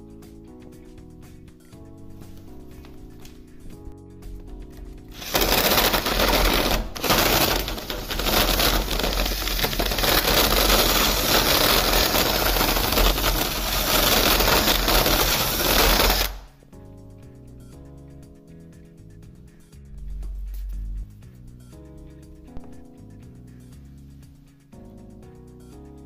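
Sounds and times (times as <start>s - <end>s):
cordless drill boring wood: 5.2s - 16.4s.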